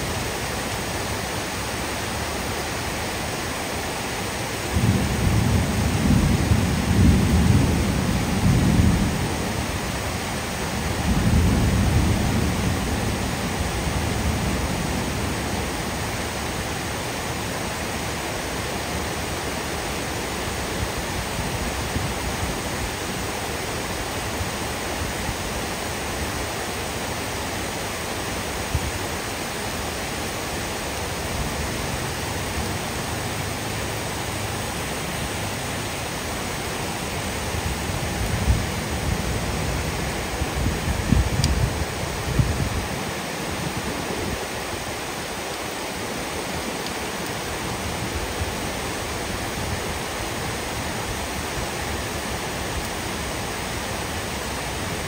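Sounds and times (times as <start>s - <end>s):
heavy rain on roofs: 0.0s - 55.0s
thunder rumbling: 4.7s - 16.2s, 37.0s - 44.6s.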